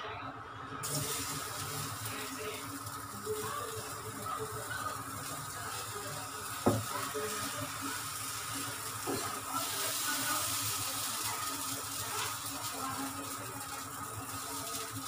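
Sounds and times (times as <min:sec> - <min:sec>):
batter sizzling on a pan: 0:00.8 - 0:15.0.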